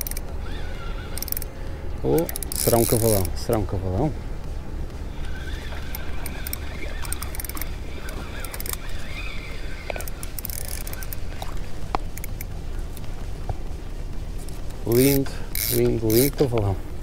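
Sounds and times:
faint wavering high calls: 0:00.0 - 0:01.4, 0:05.1 - 0:11.4
fishing reel clicking: 0:00.0 - 0:01.5, 0:02.1 - 0:03.4, 0:05.2 - 0:11.4, 0:12.1 - 0:12.5, 0:14.9 - 0:16.6.

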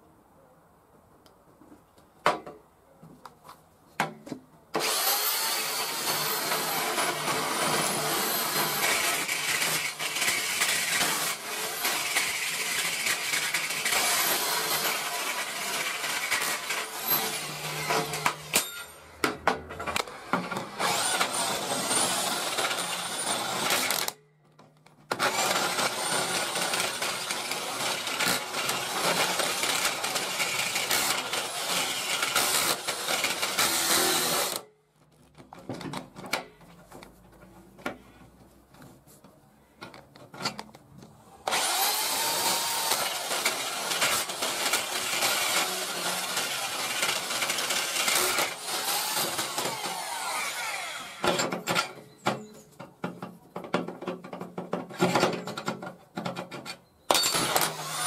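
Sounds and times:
drill clicks: 0:04.8 - 0:19.0, 0:19.9 - 0:24.2, 0:25.1 - 0:34.7, 0:41.4 - 0:51.9, 0:57.1 - 0:58.0
electric drill boring into steel: 0:04.8 - 0:19.0, 0:20.0 - 0:24.2, 0:25.2 - 0:34.6, 0:41.4 - 0:51.4, 0:57.1 - 0:58.0.

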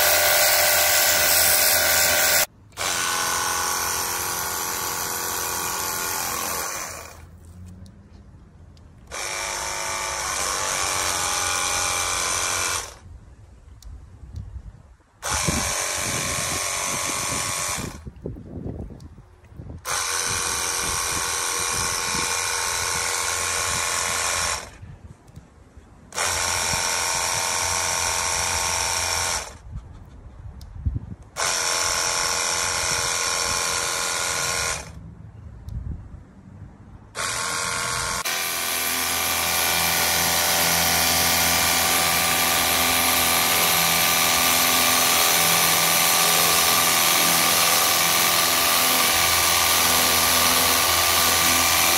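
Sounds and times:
pressure washer pump whining: 0:00.0 - 0:07.6, 0:09.0 - 0:13.0, 0:15.2 - 0:18.1, 0:19.9 - 0:24.8, 0:26.1 - 0:29.5, 0:37.2 - 0:51.9.

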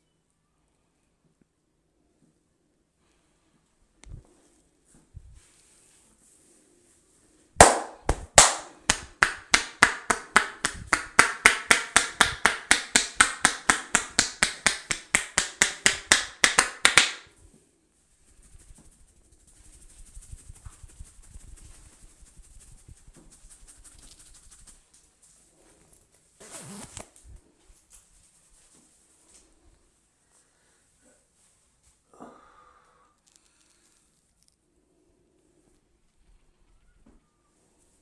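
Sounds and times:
hands rubbing hair: 0:04.2 - 0:17.4, 0:18.0 - 0:26.8, 0:27.6 - 0:29.6
hands striking head rapidly: 0:07.6 - 0:17.3.

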